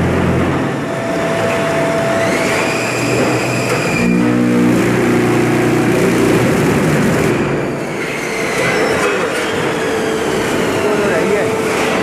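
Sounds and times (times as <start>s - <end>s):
machine mechanical clatter and hum: 0.0s - 12.0s
humming tone: 0.6s - 6.6s.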